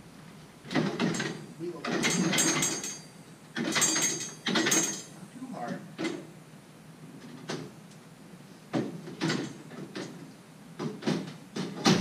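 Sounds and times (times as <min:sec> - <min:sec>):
tools clanking on steel frame: 0:00.7 - 0:05.1, 0:08.8 - 0:10.2.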